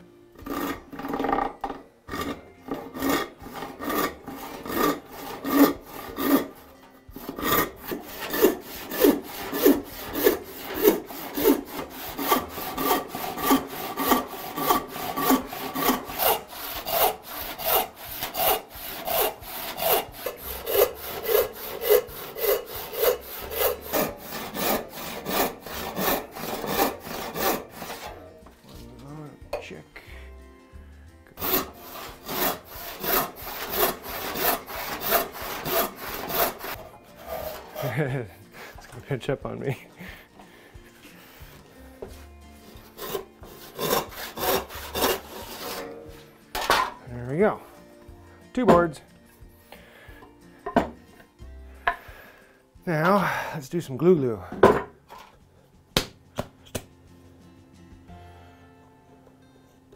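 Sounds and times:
handsaw cutting wood: 0.4s - 1.5s, 2.1s - 28.3s, 31.4s - 38.8s, 41.3s - 46.1s.

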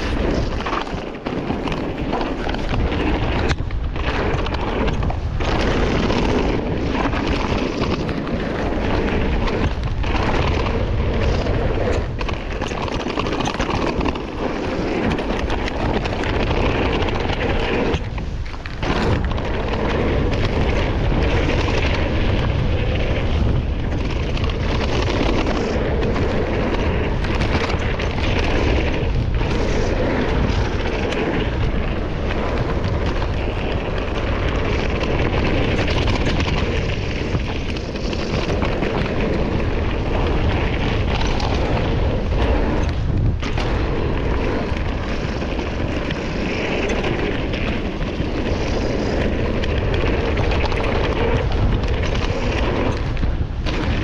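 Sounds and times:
tyre and trail noise: 0.0s - 54.0s
wind rumble on microphone: 0.0s - 54.0s.

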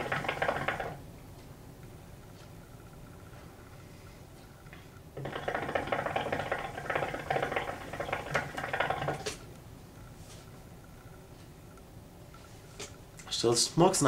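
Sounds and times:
hookah water bubbling: 0.0s - 1.1s, 4.7s - 9.5s.

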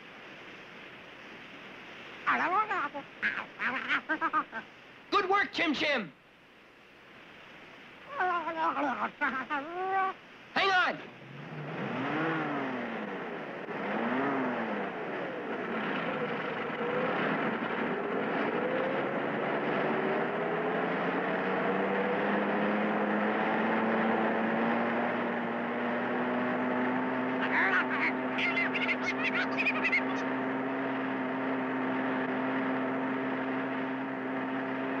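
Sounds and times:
cartoon racing car engine whine: 11.2s - 35.0s.

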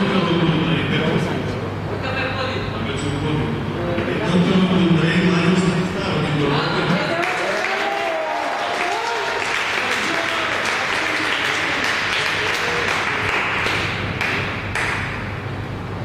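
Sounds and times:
audience applauding: 7.0s - 15.2s.

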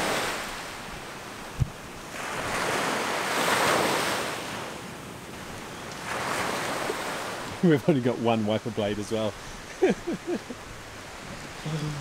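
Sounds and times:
heavy surf breaking: 0.0s - 12.0s
low thump: 1.6s - 1.8s.

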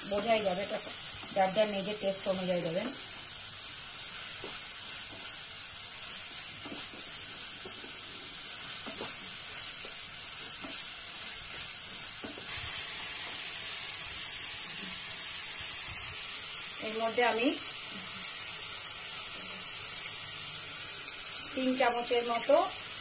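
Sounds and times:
paste sizzling in oil: 0.0s - 23.0s
wooden spatula scraping a pan: 6.5s - 12.6s.

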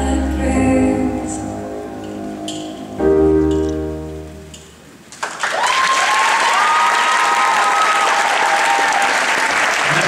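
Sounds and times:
held music chord: 0.0s - 5.0s
crowd applauding: 5.1s - 10.0s
high-pitched cheers: 5.4s - 10.0s.

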